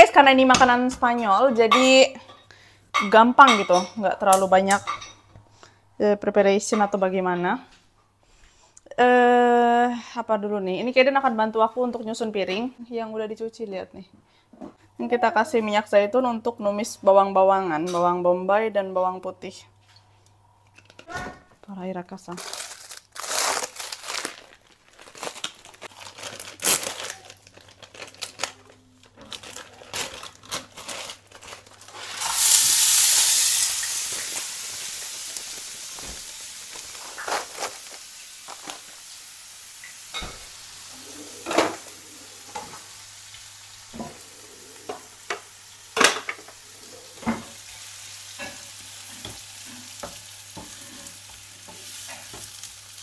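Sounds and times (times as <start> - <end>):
oil sizzling in frying pan: 32.0 - 53.0.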